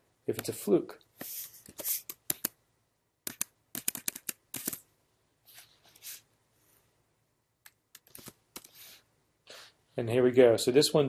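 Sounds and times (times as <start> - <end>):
soft mouse clicks: 1.2 - 2.6, 3.2 - 4.8.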